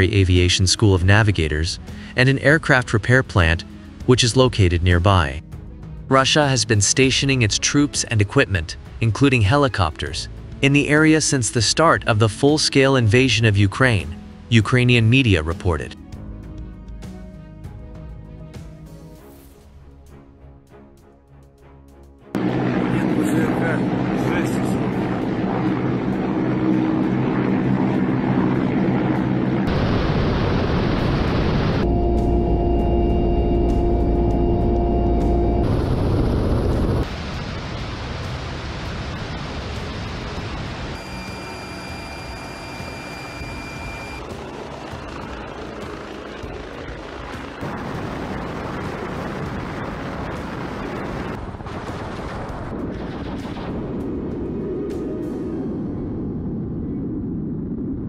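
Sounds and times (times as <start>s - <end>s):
helicopter rotor and engine noise: 22.4s - 30.0s, 41.0s - 51.4s
rushing rotor and airflow noise: 22.4s - 31.8s, 40.1s - 51.5s
high turbine whine: 22.4s - 51.6s
rockets launching: 29.6s - 31.8s, 35.7s - 44.2s, 46.8s - 58.0s.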